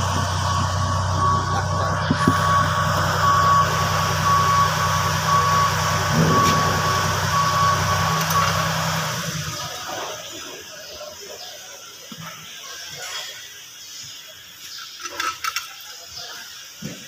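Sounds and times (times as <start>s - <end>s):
warning alarm beeping: 0.0s - 9.9s
crane engine drone: 0.0s - 10.9s.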